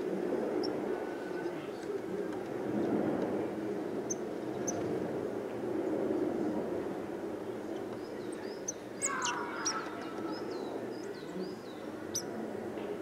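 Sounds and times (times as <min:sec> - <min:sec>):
small birds chirping: 0:04.0 - 0:04.8, 0:07.7 - 0:12.4.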